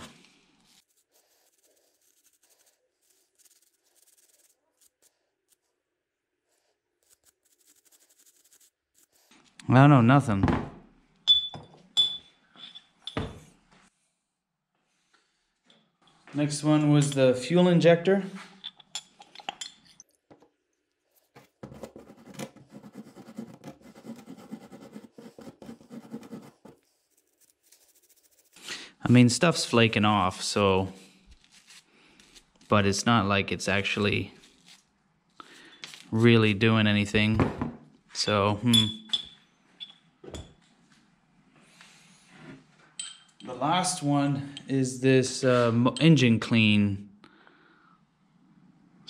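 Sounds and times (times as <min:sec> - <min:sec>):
wire brush scratching metal: 0:00.7 - 0:05.6, 0:07.0 - 0:09.3, 0:27.0 - 0:28.7.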